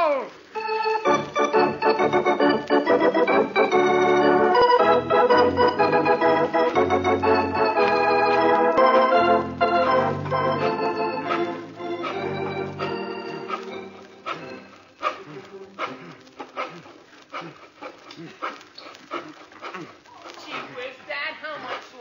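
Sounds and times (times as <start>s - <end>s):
organ music: 0.5s - 16.3s.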